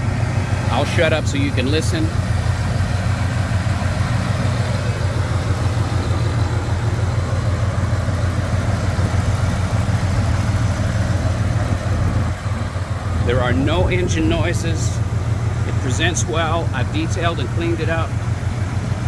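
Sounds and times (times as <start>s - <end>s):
truck engine idling: 0.0s - 19.0s.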